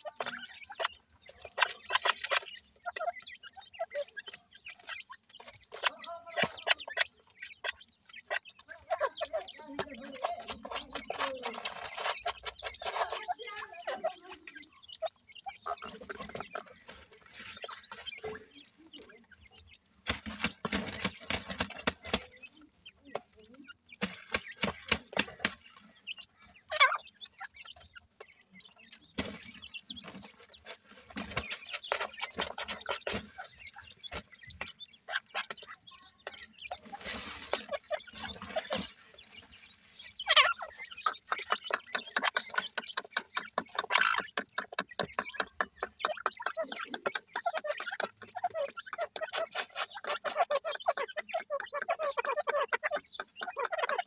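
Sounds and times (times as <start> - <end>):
scratching in gravelly dirt: 0.0 - 23.2, 24.0 - 54.0
birds clucking and calling: 0.0 - 54.0.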